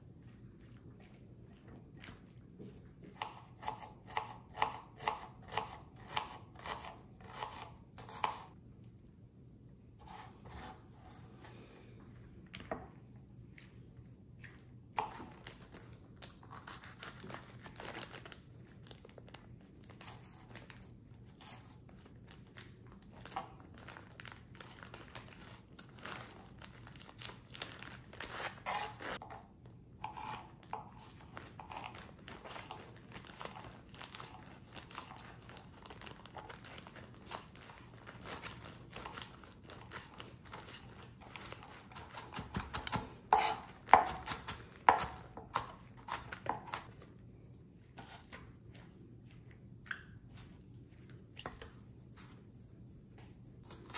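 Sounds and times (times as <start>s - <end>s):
knife chopping vegetables: 3.0s - 8.5s, 28.3s - 29.4s, 30.0s - 32.8s, 38.2s - 47.0s.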